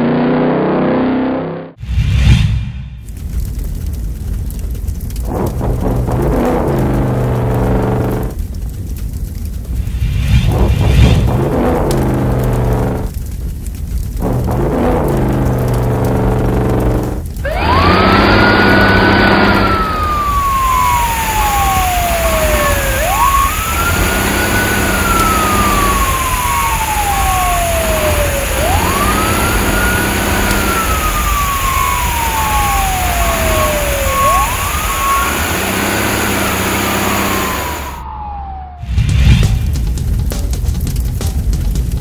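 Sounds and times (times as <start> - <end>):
low engine rumble: 2.8 - 42.0
fire engine siren wailing: 5.1 - 8.4, 11.0 - 13.3, 14.2 - 39.1
steady hiss: 19.5 - 37.9.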